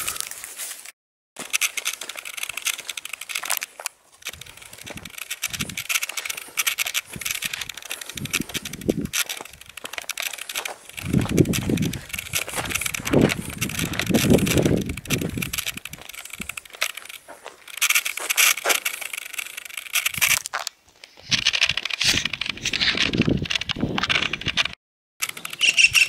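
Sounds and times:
wind buffeting microphone: 0:04.3 - 0:05.9, 0:07.0 - 0:09.9, 0:10.9 - 0:16.7, 0:21.2 - 0:24.8.

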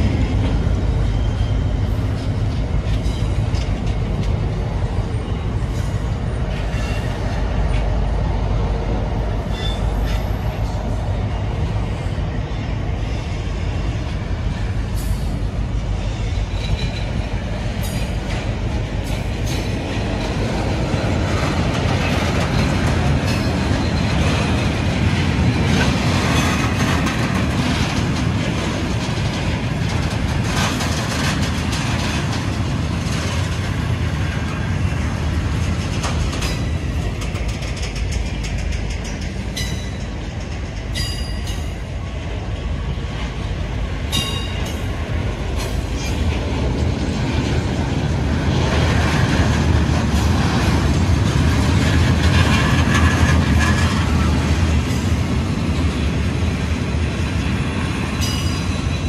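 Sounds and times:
train wheels rumbling on rail: 0:00.0 - 0:59.0
wheels clicking over rail joints: 0:13.8 - 0:59.0.

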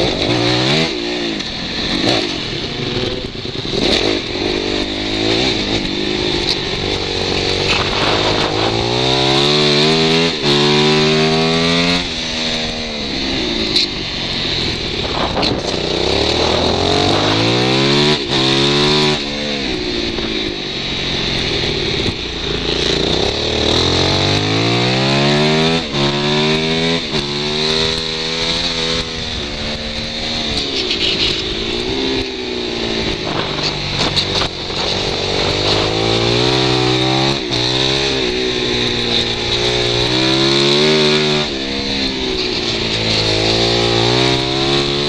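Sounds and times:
motorcycle engine revving: 0:00.0 - 0:45.0
wind rush on microphone: 0:01.7 - 0:10.1, 0:12.9 - 0:20.6, 0:31.3 - 0:36.6.

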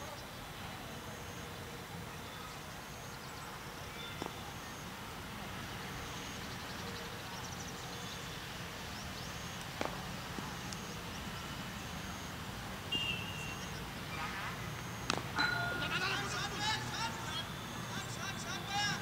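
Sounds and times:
bird chirps: 0:12.9 - 0:13.9.

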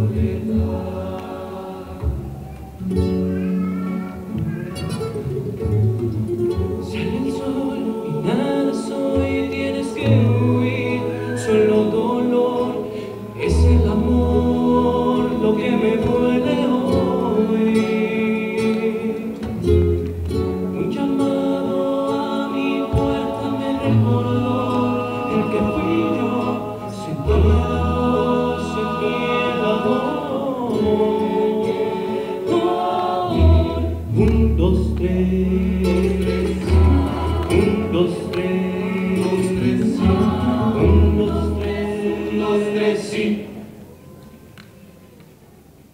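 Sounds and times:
voices singing in harmony: 0:00.0 - 0:03.4, 0:04.2 - 0:44.3
acoustic guitars playing ballad: 0:00.0 - 0:43.8
bass guitar notes: 0:09.0 - 0:17.6, 0:32.6 - 0:42.2.

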